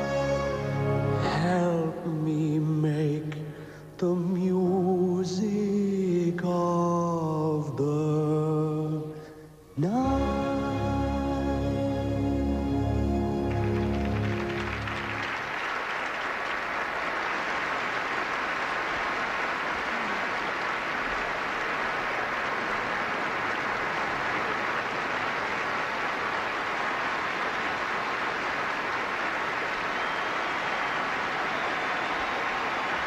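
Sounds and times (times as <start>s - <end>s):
orchestral and sung chord: 0.0s - 3.4s, 9.9s - 15.3s
audience applauding: 13.3s - 33.0s.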